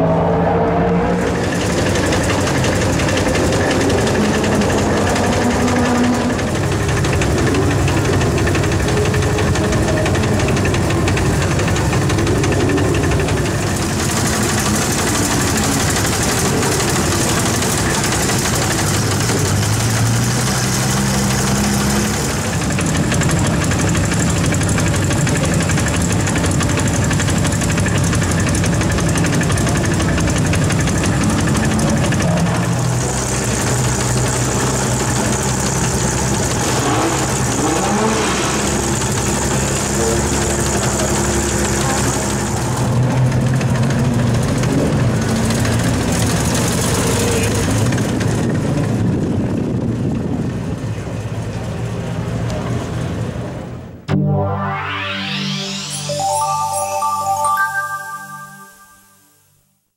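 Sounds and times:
car engine idling: 0:01.2 - 0:34.4.

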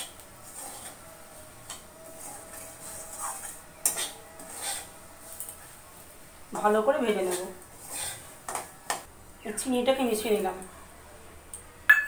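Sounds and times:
metal spatula scraping pan: 0:00.0 - 0:05.8, 0:06.5 - 0:09.1.

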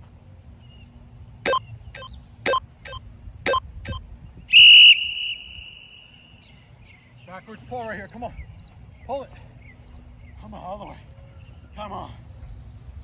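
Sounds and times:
long timer beep: 0:01.5 - 0:04.0
timer countdown beeps: 0:01.5 - 0:04.0.

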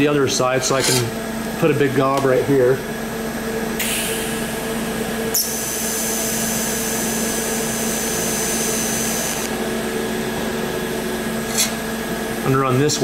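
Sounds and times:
welding arc hissing: 0:03.8 - 0:09.6
welding arc striking click: 0:05.4 - 0:06.5, 0:08.3 - 0:09.6.

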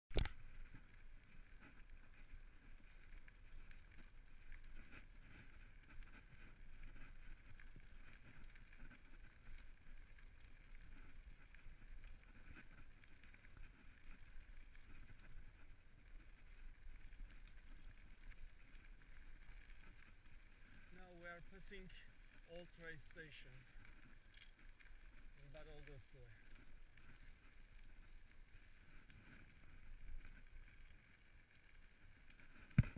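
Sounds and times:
small rattles and ticks: 0:00.1 - 0:32.9
bicycle tyres crunching on gravel: 0:00.2 - 0:32.9.

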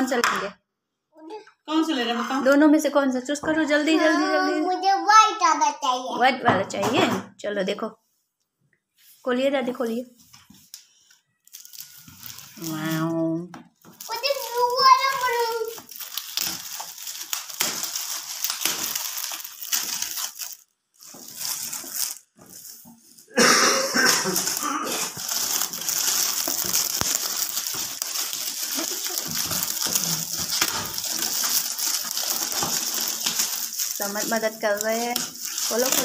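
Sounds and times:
gift wrap crinkling and tearing: 0:10.9 - 0:23.3, 0:24.1 - 0:36.0.

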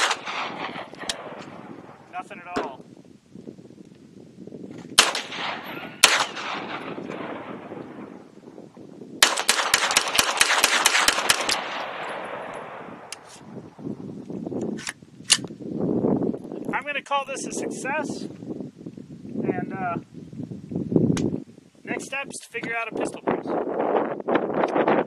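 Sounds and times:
gunshot echo: 0:00.0 - 0:02.0, 0:05.0 - 0:08.2, 0:09.2 - 0:13.3
pistol gunshots: 0:00.0 - 0:02.0, 0:05.0 - 0:08.1, 0:09.2 - 0:13.2.

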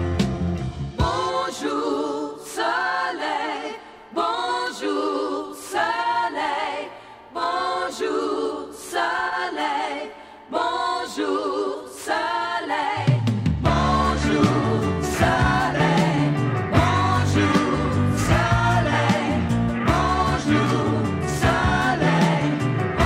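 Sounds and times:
bass-heavy backing band: 0:00.0 - 0:01.2, 0:13.3 - 0:23.0
voices singing in harmony: 0:01.0 - 0:23.0.

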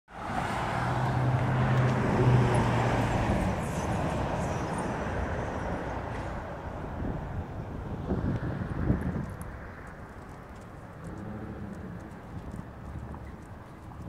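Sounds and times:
car driving past at speed: 0:00.1 - 0:07.2
street traffic hiss: 0:00.1 - 0:14.0.

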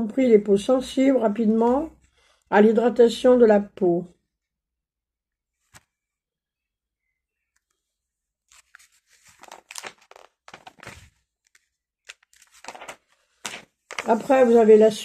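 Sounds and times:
paper rustling and crinkling: 0:08.5 - 0:15.0.

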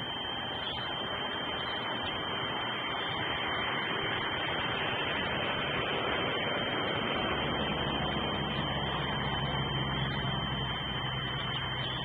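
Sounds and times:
low steady hum: 0:00.0 - 0:12.0
microphone hiss: 0:00.0 - 0:12.0
thin high whine: 0:00.0 - 0:12.0.

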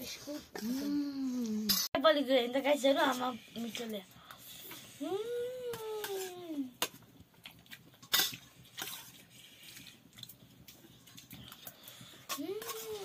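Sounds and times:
metal spoon scraping a plate: 0:06.0 - 0:06.4, 0:12.2 - 0:13.0.

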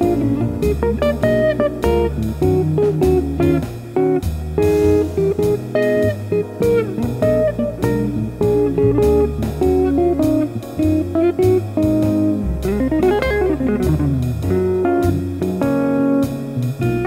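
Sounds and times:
clean electric guitar picking: 0:00.0 - 0:17.0.

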